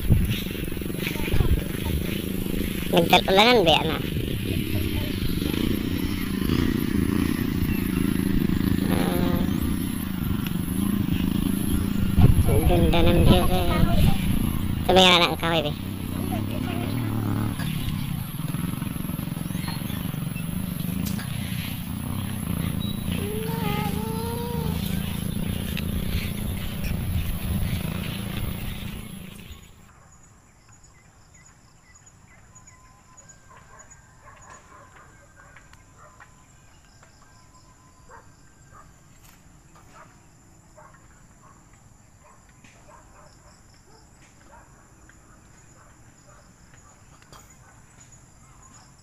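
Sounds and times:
wind rushing on microphone: 0.0s - 29.5s
high-pitched insect drone: 1.8s - 29.6s
faint bird chirps: 19.2s - 29.8s.

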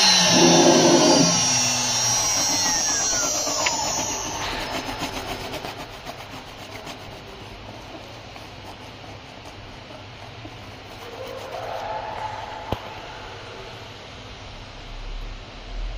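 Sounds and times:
steady tone: 0.0s - 6.8s
hand rubbing plastic sheet: 0.0s - 12.6s
low machine hum: 0.0s - 15.9s.

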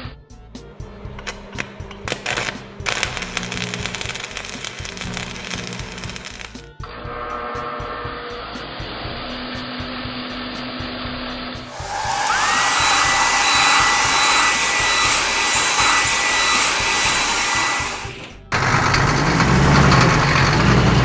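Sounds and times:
rising whine: 0.6s - 6.7s, 11.6s - 19.0s
blower-like hiss: 11.7s - 18.4s.

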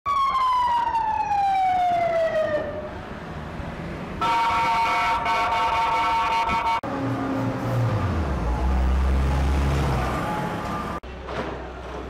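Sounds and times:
emergency vehicle siren: 0.0s - 11.0s.

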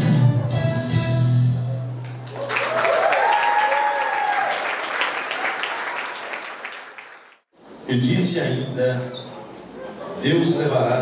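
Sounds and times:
audience applauding: 2.0s - 7.4s.

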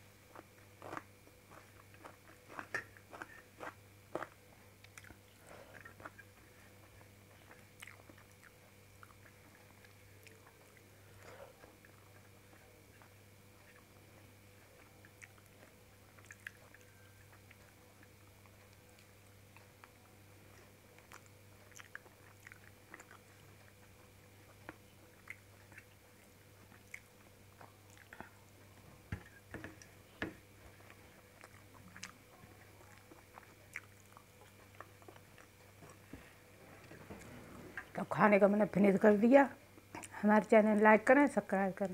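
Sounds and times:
faint steady hum: 0.0s - 41.9s
person chewing food: 0.3s - 37.9s.

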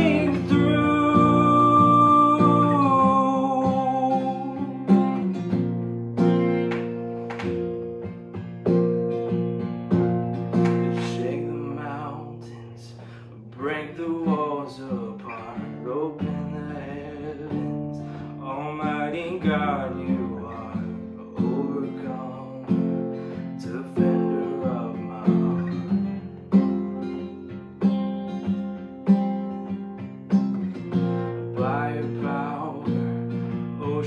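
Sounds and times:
man singing: 0.0s - 5.6s, 10.5s - 26.2s, 31.0s - 34.0s
acoustic guitar strummed: 0.0s - 34.0s.

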